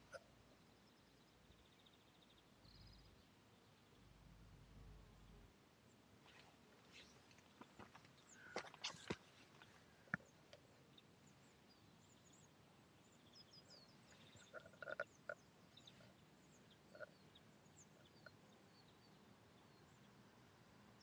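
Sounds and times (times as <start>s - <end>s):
faint high bird chirps: 0.0s - 4.1s, 6.2s - 20.2s
short animal calls: 14.3s - 15.4s.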